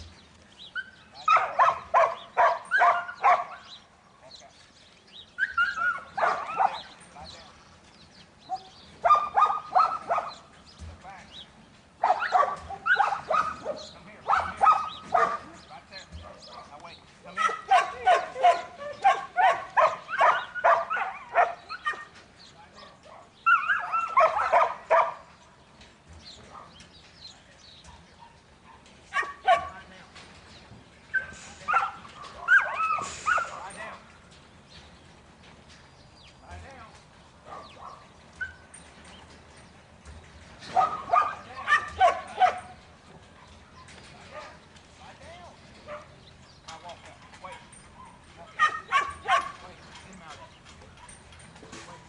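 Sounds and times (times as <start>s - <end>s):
dog barking: 1.2s - 3.7s, 5.4s - 6.9s, 8.5s - 10.4s, 12.0s - 15.5s, 17.4s - 22.1s, 22.8s - 25.3s, 28.2s - 29.8s, 31.2s - 33.6s, 37.5s - 38.0s, 40.8s - 42.7s, 48.0s - 49.6s.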